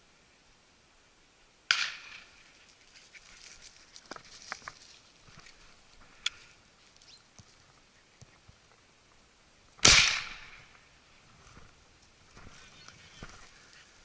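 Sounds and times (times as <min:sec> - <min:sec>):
shotgun shot: 0:09.8 - 0:10.7.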